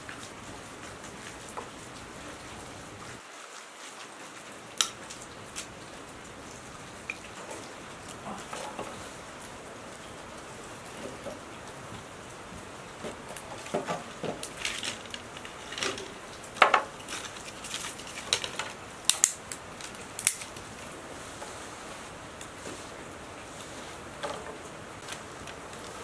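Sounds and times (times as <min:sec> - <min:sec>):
sticks snapping: 0:04.8 - 0:05.7, 0:17.0 - 0:20.6.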